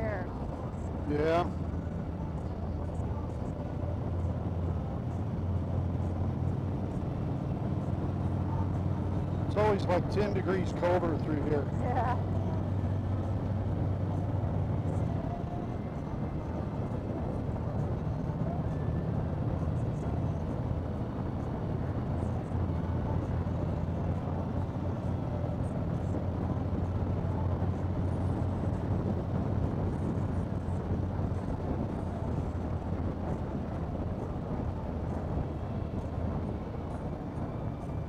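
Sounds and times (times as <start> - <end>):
motorcycle engine drone: 0.0 - 38.0
wind and road noise: 0.0 - 38.0.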